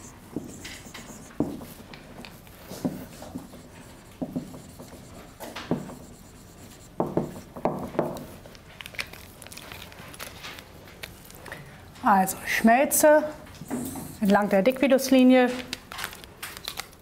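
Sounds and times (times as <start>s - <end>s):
marker pen writing on whiteboard: 0.0s - 8.3s.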